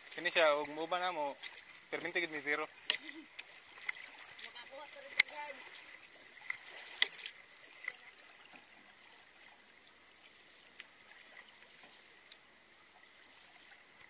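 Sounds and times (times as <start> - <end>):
water trickling along canoe: 0.0 - 14.0
faint ticks: 11.6 - 12.5.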